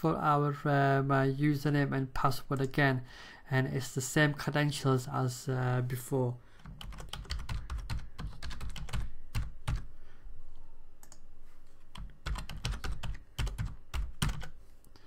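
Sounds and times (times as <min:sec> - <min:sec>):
computer keyboard typing: 0:06.6 - 0:09.9, 0:11.9 - 0:14.6.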